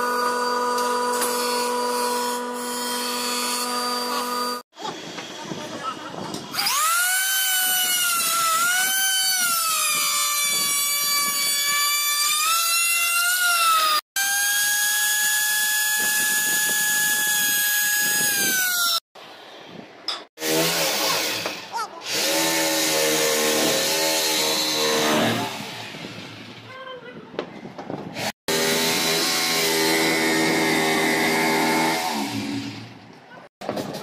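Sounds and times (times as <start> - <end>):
router motor whine: 6.5 - 19.0.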